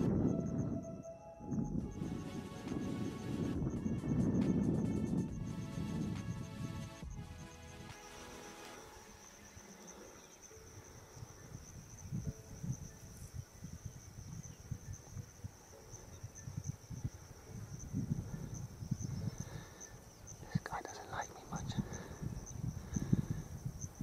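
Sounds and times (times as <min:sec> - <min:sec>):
insects trilling: 0:00.0 - 0:24.0.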